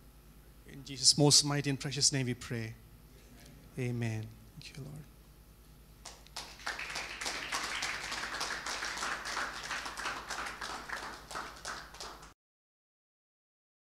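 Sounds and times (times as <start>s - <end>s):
congregation clapping: 6.0s - 12.4s.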